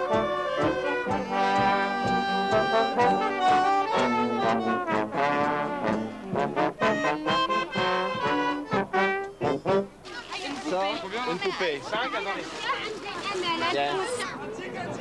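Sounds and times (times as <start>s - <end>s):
lively brass music: 0.0s - 11.7s.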